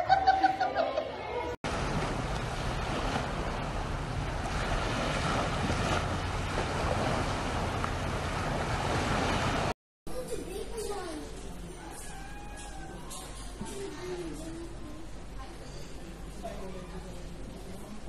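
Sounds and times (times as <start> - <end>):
sea waves rushing: 1.7 - 9.8.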